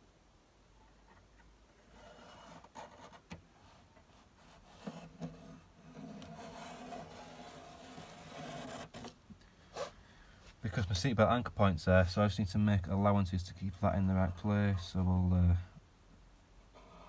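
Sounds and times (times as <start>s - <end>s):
low steady hum: 0.0s - 17.0s
metal panel rubbing and scraping: 4.5s - 9.2s.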